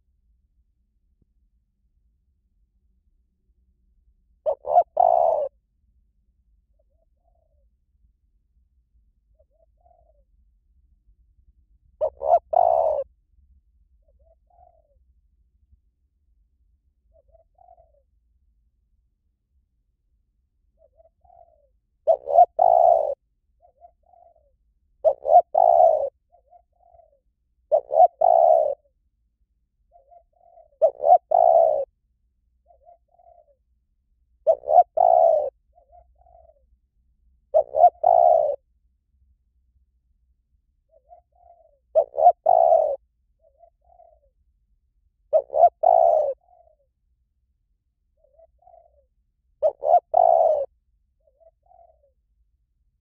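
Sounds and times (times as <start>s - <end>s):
dove cooing: 4.4s - 5.6s, 6.7s - 7.7s, 9.3s - 10.3s, 12.0s - 13.1s, 14.0s - 15.0s, 17.1s - 18.1s, 20.7s - 29.0s, 29.9s - 32.0s, 32.6s - 33.6s, 34.4s - 36.7s, 37.5s - 38.7s, 40.8s - 44.4s, 45.3s - 46.9s, 48.1s - 52.2s.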